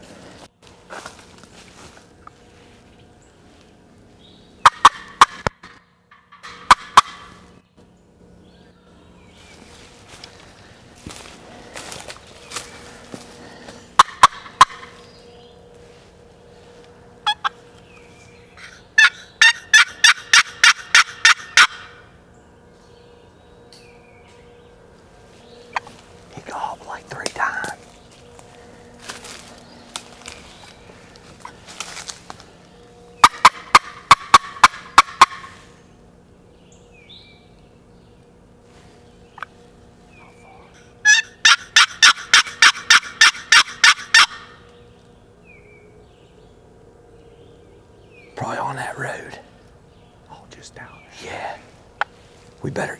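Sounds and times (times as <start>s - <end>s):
turkey yelping: 4.6s - 5.5s, 6.1s - 7.4s, 14.0s - 15.0s, 17.2s - 17.6s, 18.6s - 22.0s, 33.2s - 35.6s, 40.4s - 44.6s
turkey clucks: 4.6s - 7.4s, 14.0s - 15.0s, 17.2s - 17.6s, 18.6s - 22.0s, 33.2s - 35.6s, 39.3s - 39.6s, 40.2s - 44.6s.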